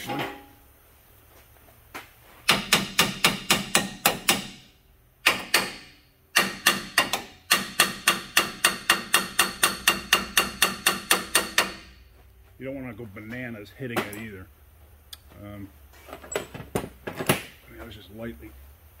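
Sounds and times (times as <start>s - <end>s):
hammer tapping on metal: 2.5s - 4.6s, 5.2s - 12.0s.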